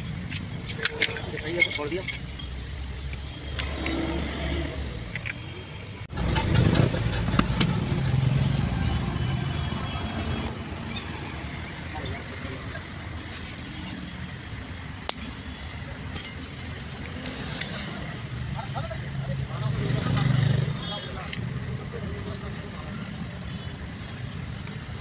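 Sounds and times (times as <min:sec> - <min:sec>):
steel gears clicking and clinking: 0:00.0 - 0:05.6, 0:15.1 - 0:18.3.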